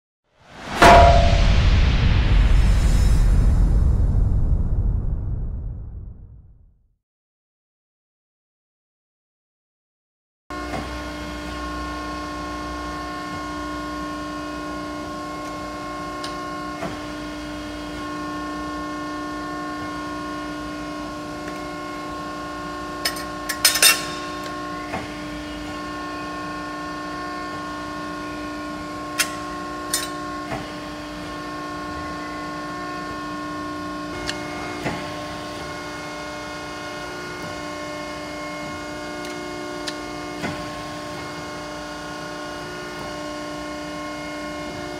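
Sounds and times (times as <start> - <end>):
machine hum: 0.5 - 6.6
sharp metal clanks: 0.6 - 1.7.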